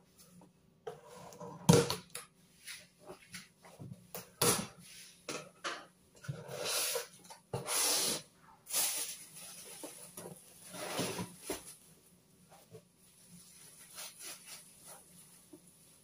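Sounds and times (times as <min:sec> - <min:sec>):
cardboard scraping and rustling: 0:09.5 - 0:11.8.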